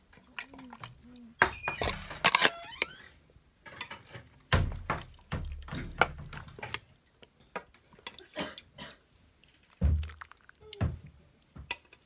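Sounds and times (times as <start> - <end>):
stew splashing onto plate: 9.5 - 12.0.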